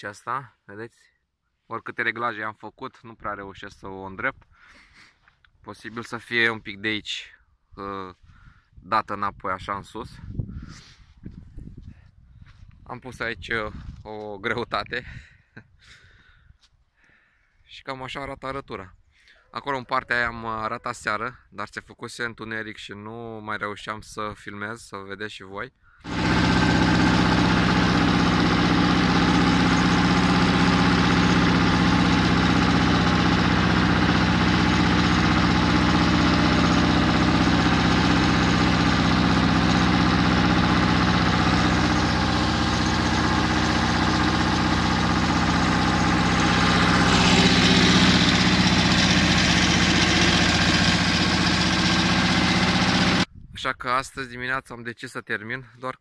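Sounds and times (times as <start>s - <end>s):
tractor engine running: 26.1s - 53.3s.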